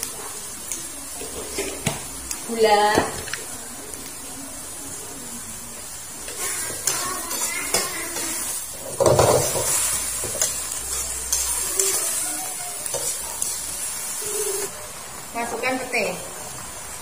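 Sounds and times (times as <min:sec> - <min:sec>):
greens sizzling in a wok: 0:00.0 - 0:17.0
metal spatula scraping a pan: 0:06.3 - 0:14.7.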